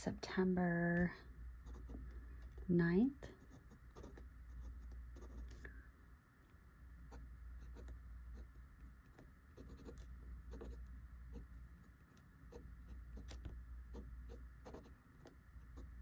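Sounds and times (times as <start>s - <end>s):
pen nib scratching paper: 1.6s - 2.7s, 3.3s - 5.7s, 7.1s - 16.0s.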